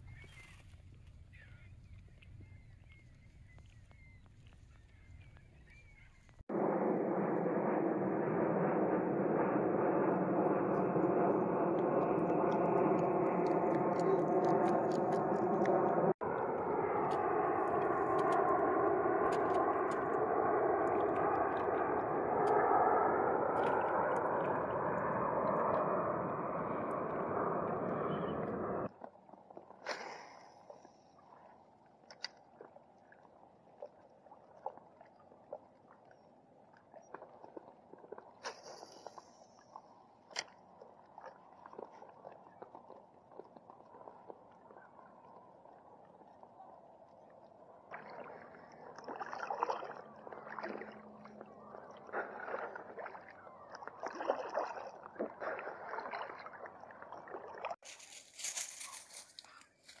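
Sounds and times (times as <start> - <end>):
faint open-water ambience: 0.0 - 60.0
paddle splashing in water: 29.0 - 57.9
water running off paddle: 47.8 - 57.8.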